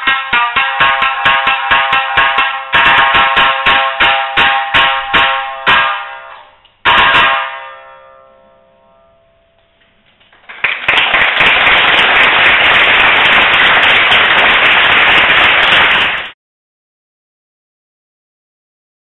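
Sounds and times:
shamisen plucked notes: 0.0s - 10.0s
audience applause: 10.4s - 16.4s.

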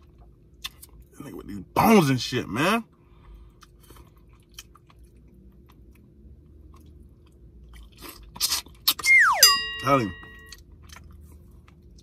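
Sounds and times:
man chewing meat: 0.0s - 1.5s, 2.9s - 9.2s, 10.1s - 12.0s
faint low hum: 0.0s - 12.0s.

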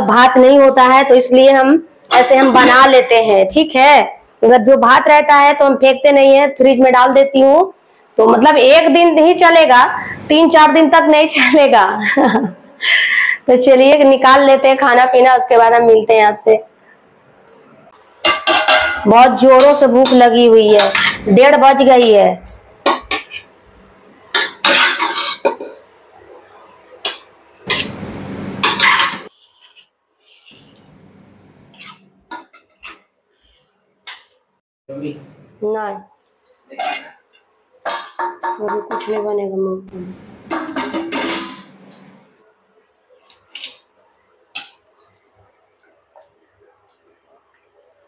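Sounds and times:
metal spoon scraping pots: 18.1s - 21.5s, 22.8s - 23.5s, 24.3s - 25.8s, 28.6s - 30.8s, 31.7s - 33.0s, 36.8s - 39.4s, 40.5s - 42.1s
steel utensil scraping: 20.0s - 21.4s, 31.7s - 33.7s.

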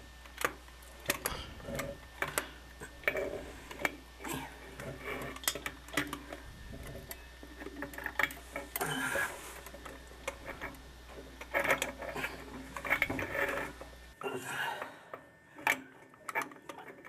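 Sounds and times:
low steady hum: 0.0s - 17.0s
rubbing and clatter: 4.7s - 14.0s
threaded fitting clicks and scraping: 15.6s - 17.0s.

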